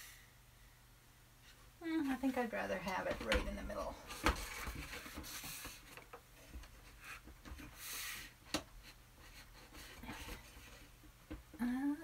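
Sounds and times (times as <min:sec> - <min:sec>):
paper rustling: 0:04.1 - 0:07.6.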